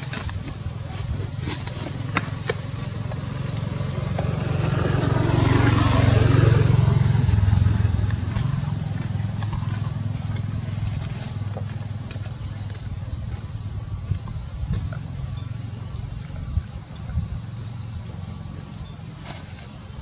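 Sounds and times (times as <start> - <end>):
steady high hiss: 0.0 - 20.0
vehicle engine passing by: 0.2 - 12.8.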